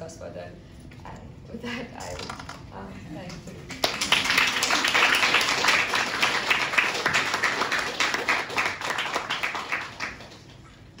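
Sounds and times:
audience applauding: 0:03.7 - 0:10.6.

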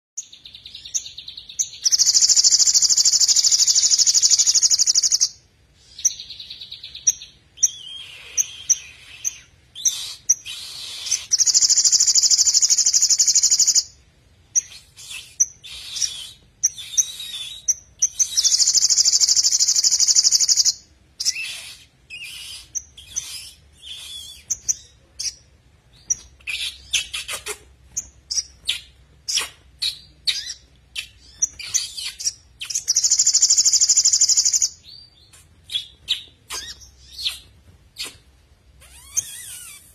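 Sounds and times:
bird singing high trills: 0:00.2 - 0:14.0.

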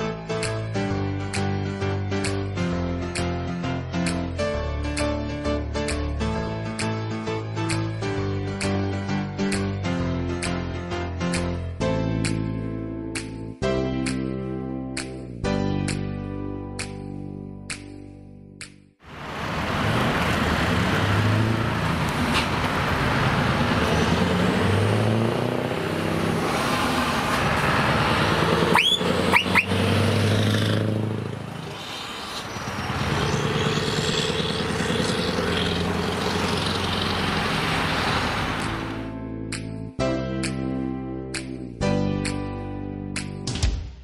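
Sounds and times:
diesel truck engine revving: 0:19.1 - 0:39.1.

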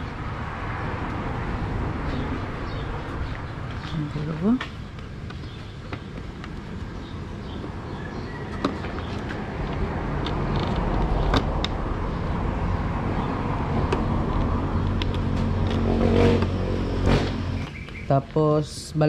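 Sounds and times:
engine running: 0:09.3 - 0:18.0.

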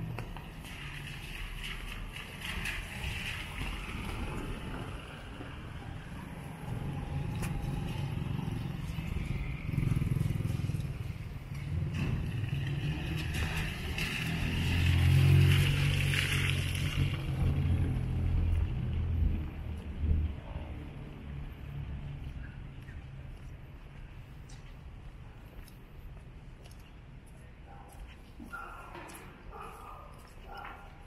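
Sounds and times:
rain: 0:00.1 - 0:19.7.

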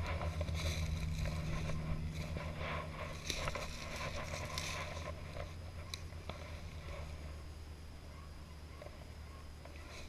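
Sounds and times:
footsteps through dry leaves: 0:00.0 - 0:07.3
steady low hum: 0:00.0 - 0:10.0.

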